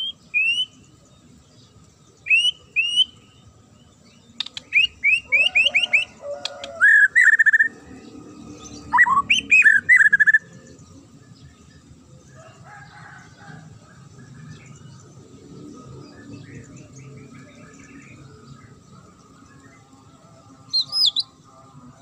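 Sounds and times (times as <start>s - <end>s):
bird singing whistled phrases: 0.0s - 0.8s, 2.2s - 3.4s, 4.4s - 7.7s, 8.9s - 10.4s, 20.7s - 21.4s
faint bird chirps: 20.7s - 21.4s.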